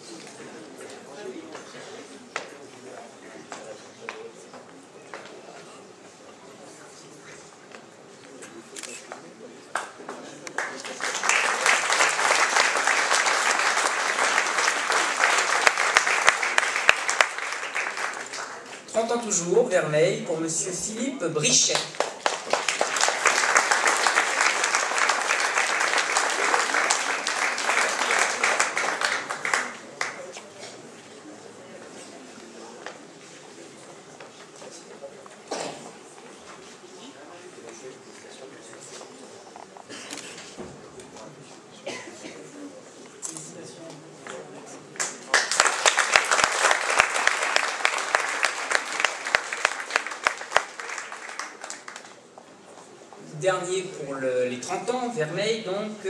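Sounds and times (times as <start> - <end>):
audience applauding: 9.8 - 18.9, 21.7 - 30.3, 45.0 - 52.4.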